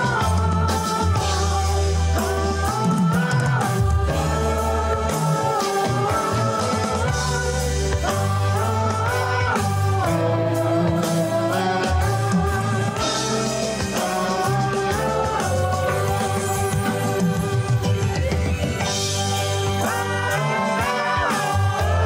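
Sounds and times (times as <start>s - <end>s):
electric bass: 0.0s - 22.0s
electric guitar: 0.0s - 22.0s
man singing: 19.7s - 22.0s.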